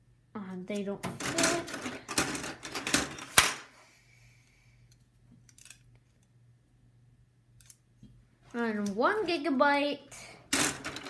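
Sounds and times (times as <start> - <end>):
memory modules clattering on table: 10.5 - 11.0.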